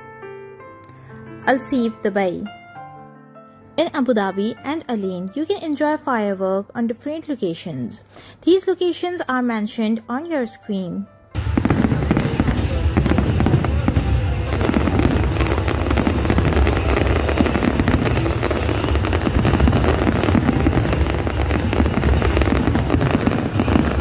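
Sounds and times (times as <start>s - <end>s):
fireworks bangs and crackles: 11.4s - 24.0s.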